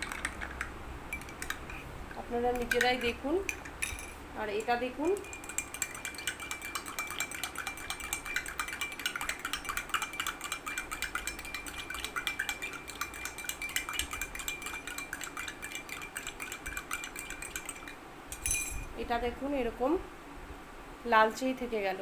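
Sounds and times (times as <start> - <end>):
spoon clinking in a glass: 0.0 - 1.8, 2.5 - 4.2, 5.1 - 18.9.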